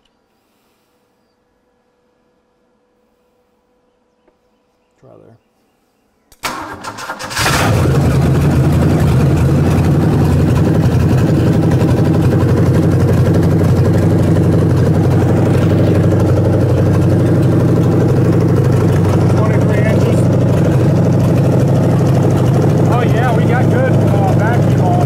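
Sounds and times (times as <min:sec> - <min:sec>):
engine idling: 0:06.4 - 0:25.0.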